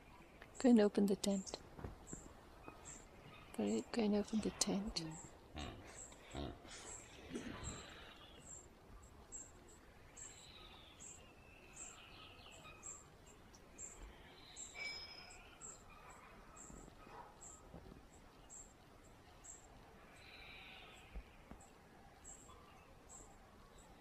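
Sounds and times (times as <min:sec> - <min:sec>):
bird calls and trills: 0:02.0 - 0:24.0.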